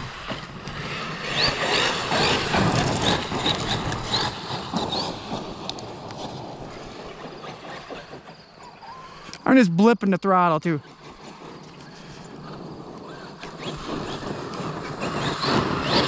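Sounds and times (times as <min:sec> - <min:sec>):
electric motor whines: 0:10.9 - 0:16.0.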